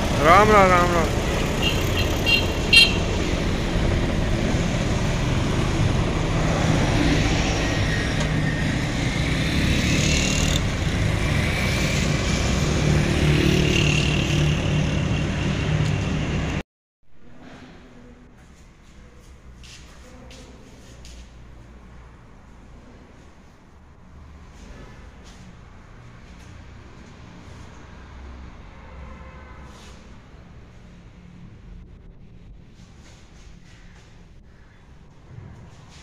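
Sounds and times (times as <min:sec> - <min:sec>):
tractor diesel engine running: 0:00.0 - 0:06.9
road traffic: 0:00.0 - 0:16.6, 0:17.4 - 0:36.0
short horn beeps: 0:01.6 - 0:03.1.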